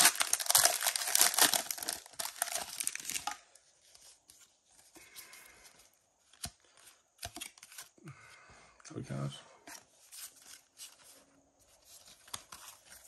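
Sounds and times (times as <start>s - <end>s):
foil wrapper crinkling and tearing: 0.0s - 3.4s.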